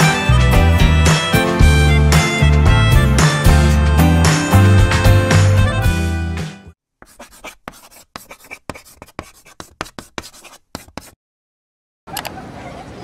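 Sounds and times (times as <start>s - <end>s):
background music: 0.0s - 6.8s.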